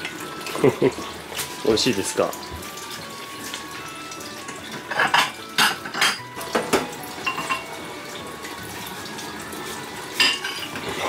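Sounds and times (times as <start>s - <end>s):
knife clattering on plate: 4.8s - 7.7s, 10.2s - 10.8s.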